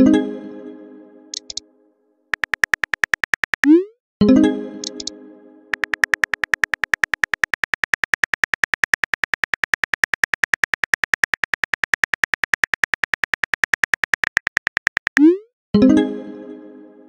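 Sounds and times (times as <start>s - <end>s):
phone keyboard typing clicks: 1.4s - 1.6s, 2.3s - 3.8s, 4.8s - 5.1s, 5.7s - 15.3s.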